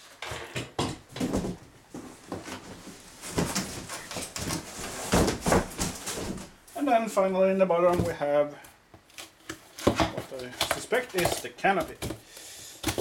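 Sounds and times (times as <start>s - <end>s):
cardboard boxes rustling and scraping: 0.0s - 6.6s.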